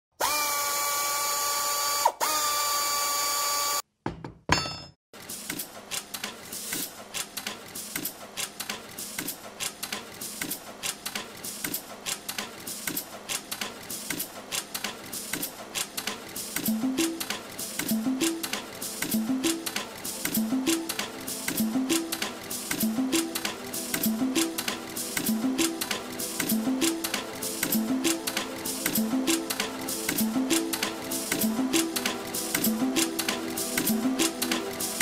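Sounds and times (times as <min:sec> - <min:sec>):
drill-like whine: 0:00.2 - 0:03.8
wire-bending machine clacking: 0:05.5 - 0:35.0.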